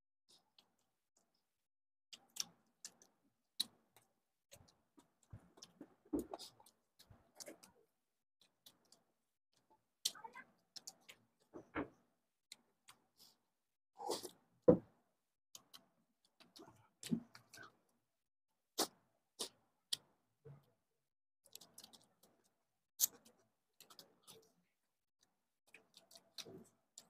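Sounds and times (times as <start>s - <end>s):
chewing and lip-smacking: 2.1s - 7.8s, 8.4s - 11.6s, 15.5s - 17.8s, 21.5s - 24.6s, 25.2s - 27.0s.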